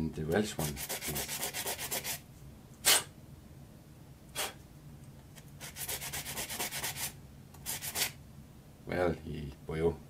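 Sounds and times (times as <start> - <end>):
sandpaper scraping wood: 0.6 - 2.2, 5.6 - 8.2.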